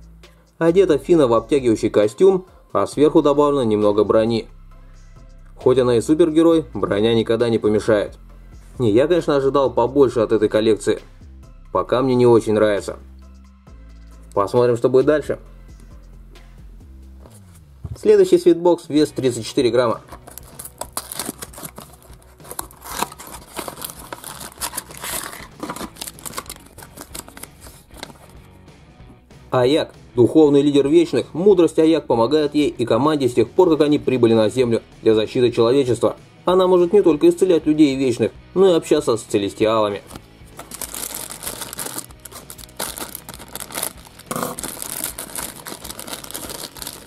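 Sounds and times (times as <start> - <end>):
plastic packets crinkling: 20.0 - 28.4, 40.6 - 47.0
cardboard box tearing: 20.1 - 28.3, 40.6 - 47.0.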